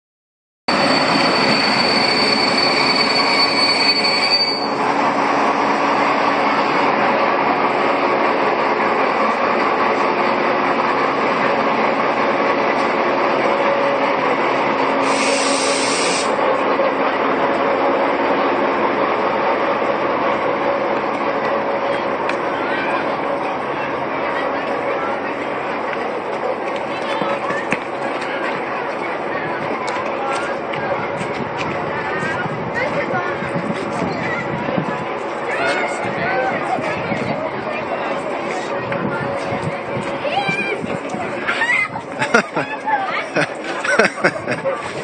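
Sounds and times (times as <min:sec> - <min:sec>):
diesel train engine running: 0:00.7 - 0:45.0
short hiss: 0:15.0 - 0:16.4.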